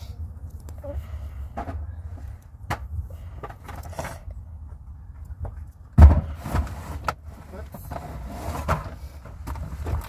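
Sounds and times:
low steady rumble: 0:00.0 - 0:10.0
loud thump: 0:06.0 - 0:06.6.

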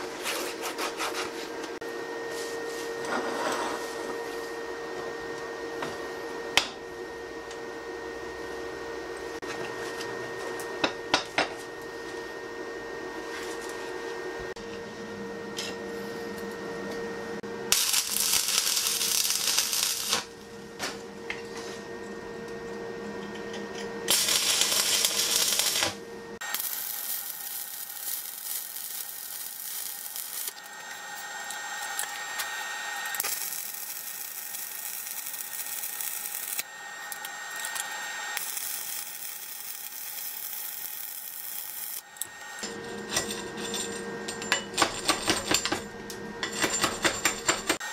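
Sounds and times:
arc welding crackle: 0:17.7 - 0:20.4, 0:24.1 - 0:42.6.

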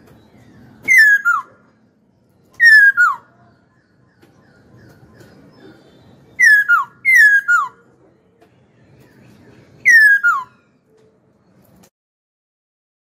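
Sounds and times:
bird whistled calls: 0:00.5 - 0:01.7, 0:02.5 - 0:07.8, 0:09.8 - 0:10.8.

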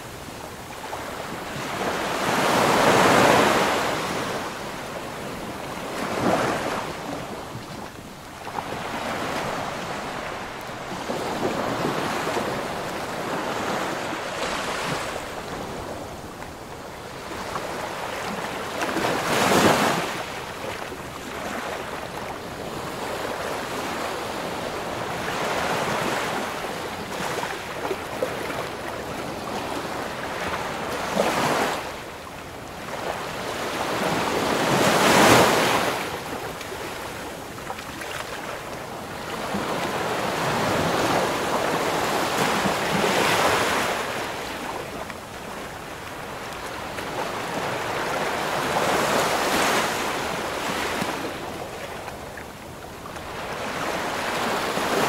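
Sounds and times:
ocean waves breaking: 0:00.0 - 0:32.1, 0:32.8 - 0:55.0.

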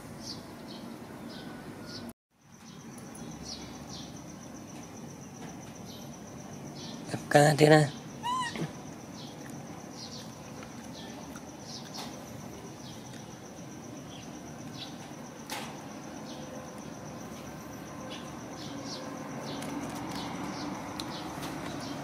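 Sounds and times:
high bird chirps: 0:08.2 - 0:09.4.

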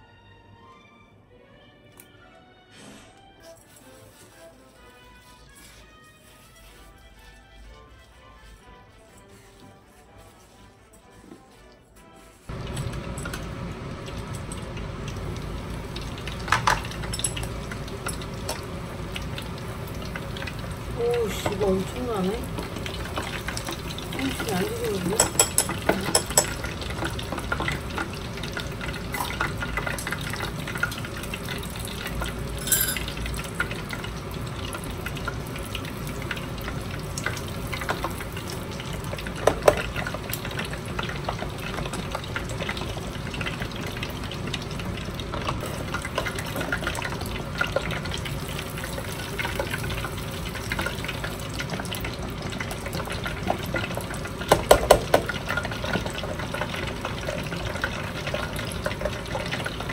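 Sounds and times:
food deep-frying in oil: 0:12.4 - 0:59.9
wire basket metal clinks: 0:32.6 - 0:33.0.

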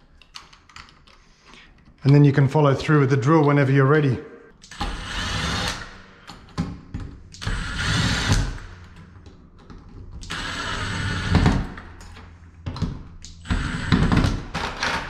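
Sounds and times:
cordless drill driving screws: 0:04.6 - 0:06.0, 0:07.4 - 0:08.6, 0:10.2 - 0:11.7.

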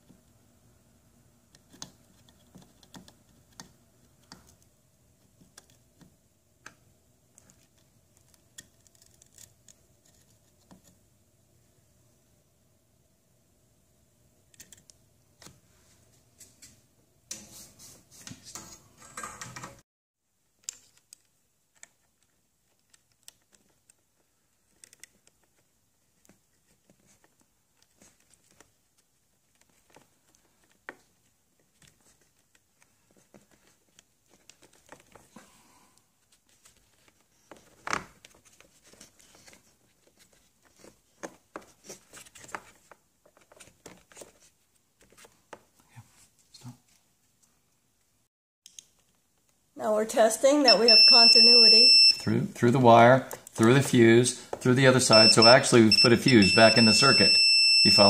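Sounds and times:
clicks and rubbing of wires: 0:06.7 - 0:11.0, 0:20.6 - 0:35.3, 0:36.2 - 0:47.1.

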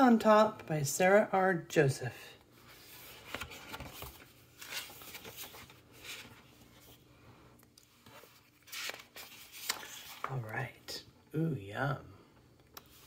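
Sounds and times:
book pages turning: 0:02.6 - 0:07.0, 0:07.8 - 0:10.5.

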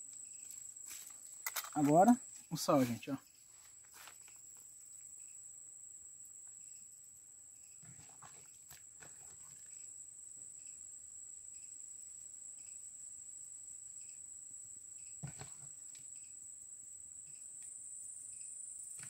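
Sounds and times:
high-pitched insect drone: 0:04.0 - 0:07.8, 0:16.0 - 0:19.0.

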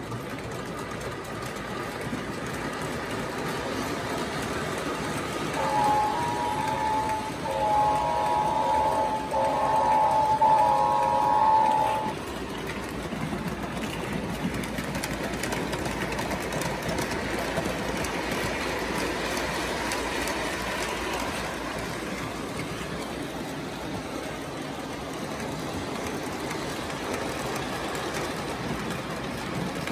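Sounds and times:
model train wheels clattering: 0:00.0 - 0:29.9
train horn chord: 0:05.6 - 0:12.2.

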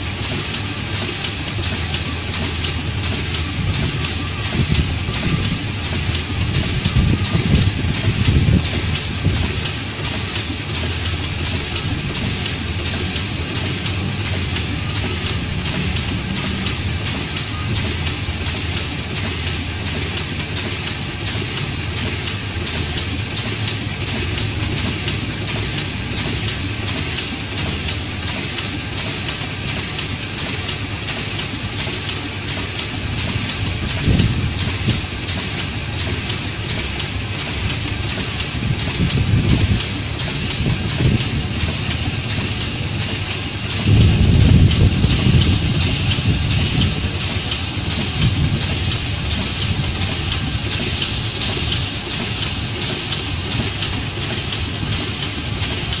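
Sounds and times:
offset press running: 0:00.0 - 0:56.0.

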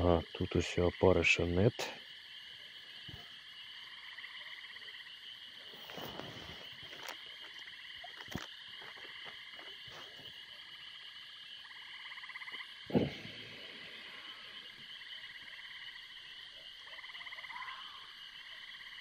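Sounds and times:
frogs calling: 0:00.0 - 0:19.0
fishing tackle clicks and rustles: 0:05.7 - 0:10.3.

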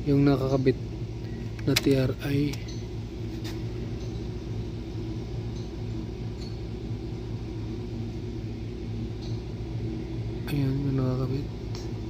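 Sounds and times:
low mechanical hum: 0:00.0 - 0:12.0
faint light clinks: 0:01.6 - 0:04.3, 0:05.5 - 0:05.8, 0:06.4 - 0:06.6.

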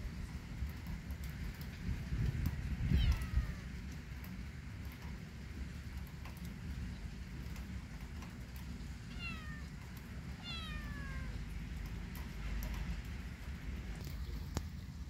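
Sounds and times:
kitten meowing: 0:02.9 - 0:03.6, 0:09.1 - 0:09.8, 0:10.4 - 0:11.4.

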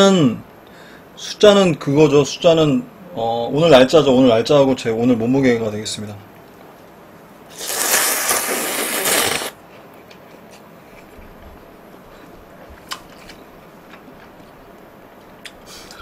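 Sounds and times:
person slurping noodles: 0:07.5 - 0:09.6.

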